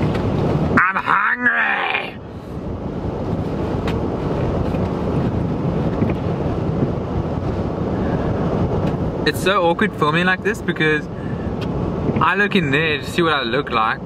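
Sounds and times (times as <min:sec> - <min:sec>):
air-conditioning fan rushing: 0:00.0 - 0:14.0
man wailing: 0:00.8 - 0:02.2.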